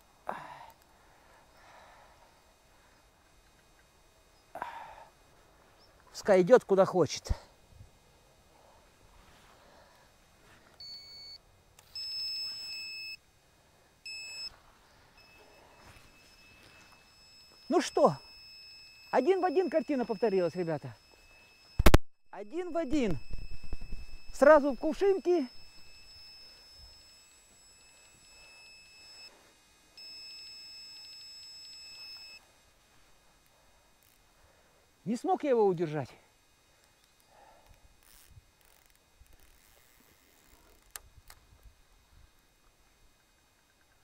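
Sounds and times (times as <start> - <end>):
electronic bite alarm beeping: 10.8 - 13.2, 14.1 - 14.6, 15.2 - 29.3, 30.0 - 32.4.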